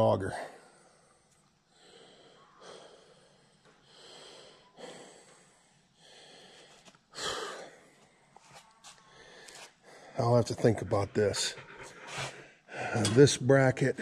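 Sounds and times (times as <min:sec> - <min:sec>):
man breathing close to microphone: 0:00.3 - 0:08.4, 0:11.2 - 0:13.1.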